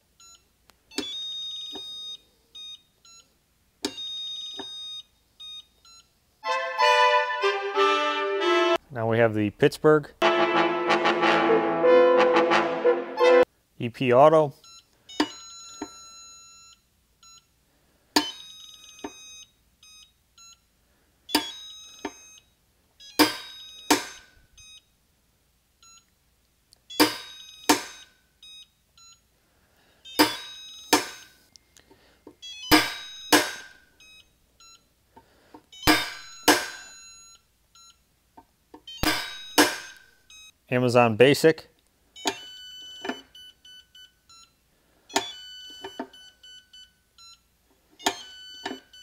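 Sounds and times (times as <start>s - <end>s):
short electronic beeps: 35.7s - 38.0s, 38.9s - 40.6s.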